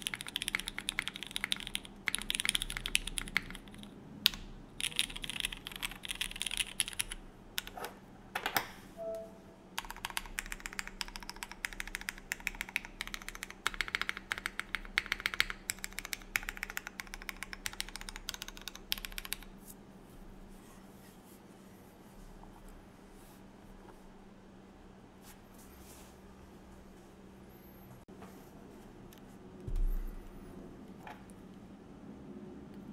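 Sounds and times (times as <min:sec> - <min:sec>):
mechanical keyboard typing: 0:00.0 - 0:07.8, 0:09.8 - 0:19.5.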